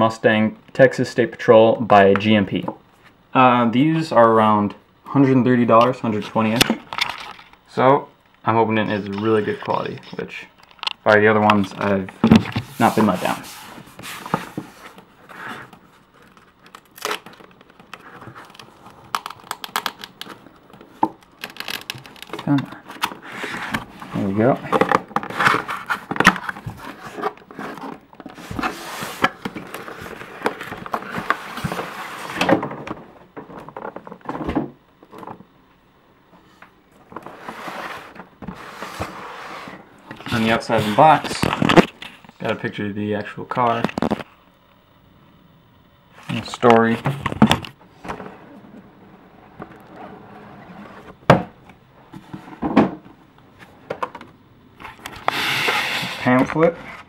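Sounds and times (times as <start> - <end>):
cardboard box scraping and rustling: 25.3 - 32.5, 37.3 - 41.1, 55.2 - 57.0
paper sliding out of box: 55.2 - 57.0.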